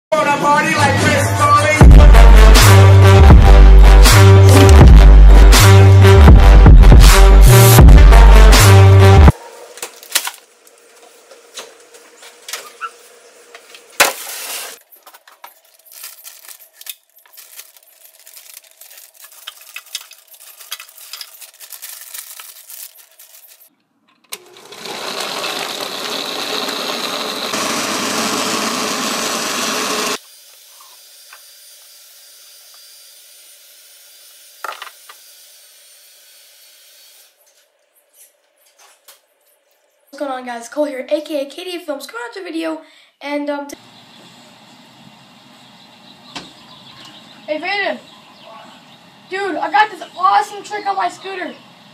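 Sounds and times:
bag rustling: 0:14.3 - 0:23.7
blender running: 0:24.4 - 0:33.6.

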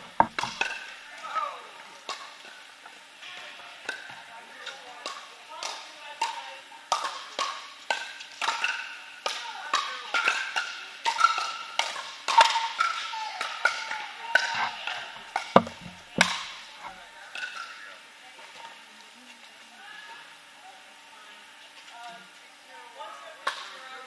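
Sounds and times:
heavy thumps: 0:00.0 - 0:00.6, 0:15.6 - 0:16.4
pickleball hollow pops: 0:00.0 - 0:00.8, 0:15.3 - 0:16.5.

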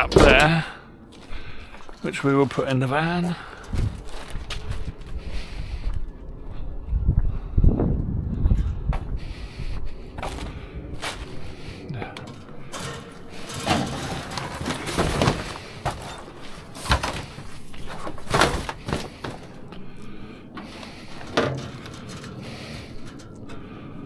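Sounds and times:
scrap metal clattering: 0:12.1 - 0:19.6, 0:20.6 - 0:23.7.

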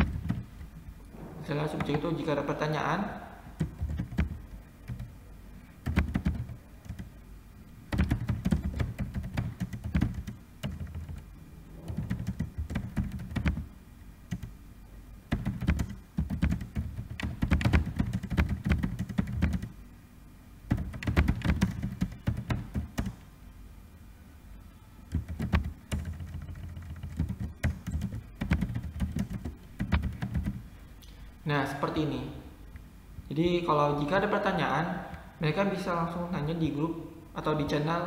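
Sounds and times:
computer keyboard typing: 0:00.0 - 0:00.5, 0:03.6 - 0:05.2, 0:05.8 - 0:07.2, 0:07.9 - 0:13.7, 0:14.3 - 0:14.6, 0:15.3 - 0:19.8, 0:20.7 - 0:23.2, 0:25.1 - 0:30.7.

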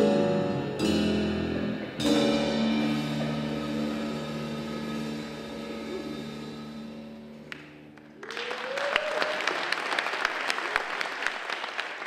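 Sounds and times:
audience applause: 0:08.0 - 0:12.0
person cheering: 0:08.2 - 0:09.7.

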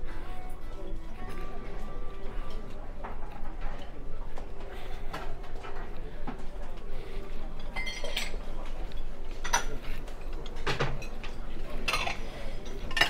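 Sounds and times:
background hubbub: 0:00.0 - 0:13.0
crockery and utensils clinking: 0:07.5 - 0:13.0.

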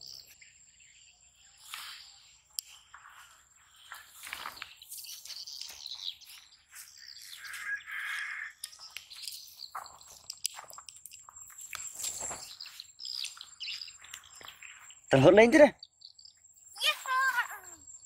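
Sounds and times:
birds chirping: 0:00.0 - 0:18.0
high insect trill: 0:00.0 - 0:18.0
scuffs and rustles: 0:01.5 - 0:08.1, 0:08.7 - 0:15.0
loud bird call: 0:07.2 - 0:08.7.

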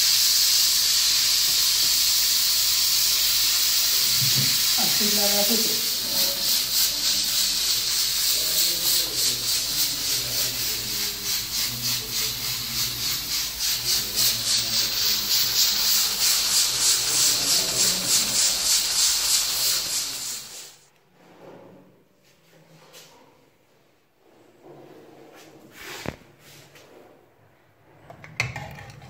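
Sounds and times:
pressure cooker hissing steam: 0:00.0 - 0:20.9.

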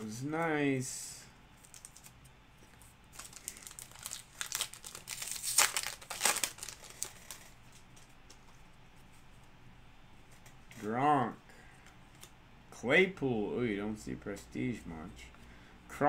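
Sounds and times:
wrapper crinkling: 0:01.6 - 0:02.2, 0:02.8 - 0:08.2.

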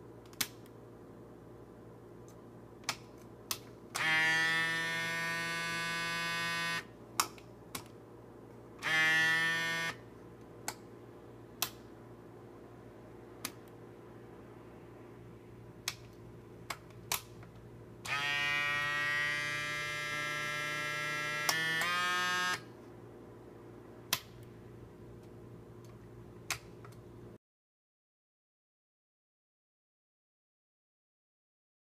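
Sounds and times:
miniature air compressor running: 0:18.1 - 0:22.6.

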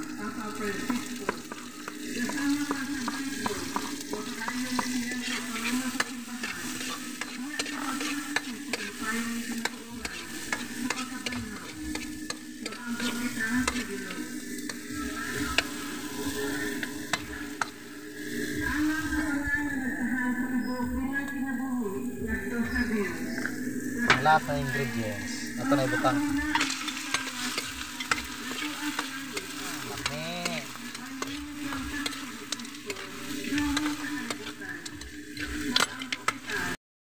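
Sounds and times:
vegetables sizzling in oil: 0:00.0 - 0:21.4, 0:22.0 - 0:36.8
spatula scraping pan: 0:00.5 - 0:18.8, 0:25.4 - 0:36.8.

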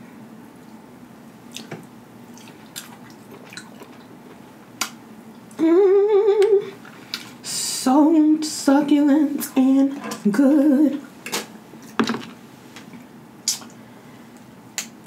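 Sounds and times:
woman humming a note: 0:05.6 - 0:06.7.

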